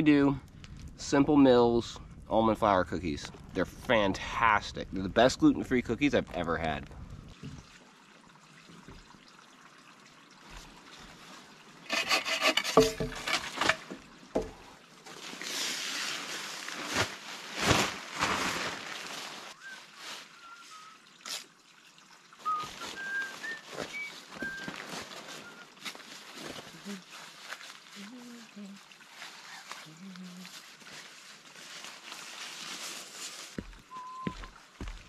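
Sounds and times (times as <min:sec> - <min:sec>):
wooden knocks: 0:11.9 - 0:14.6
tarp and bedding rustling: 0:15.1 - 0:20.9, 0:22.4 - 0:34.4.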